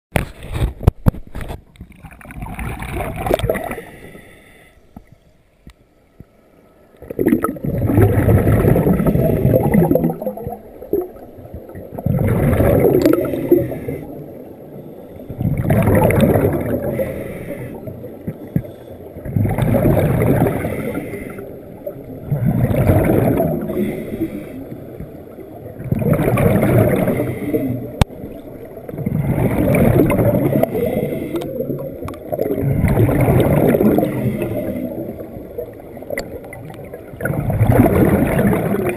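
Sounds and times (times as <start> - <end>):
exhaled bubbles gurgling: 1.7 - 4.3, 7.0 - 38.9
regulator inhalations: 23.7 - 24.8, 30.6 - 31.7.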